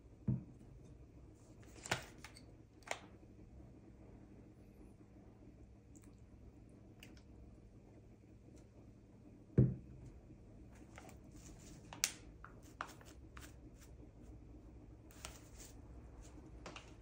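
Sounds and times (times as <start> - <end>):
thump on hard surface: 9.6 - 9.8.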